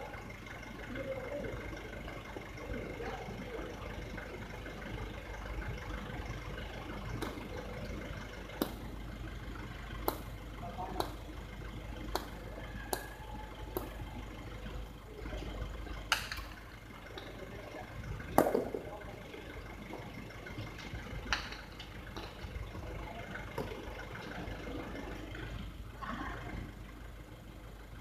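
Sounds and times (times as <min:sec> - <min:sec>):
steady low rumble: 0:00.0 - 0:28.0
ball cracking off wall: 0:08.6 - 0:08.9, 0:18.3 - 0:18.9
hard ball bouncing on concrete: 0:08.6 - 0:08.9, 0:10.0 - 0:10.3, 0:12.1 - 0:14.0, 0:18.4 - 0:18.9.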